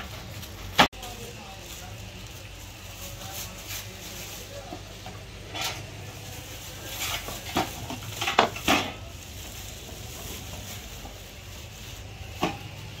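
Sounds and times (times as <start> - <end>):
pots and metal lids clinking: 5.0 - 6.1, 6.7 - 9.2.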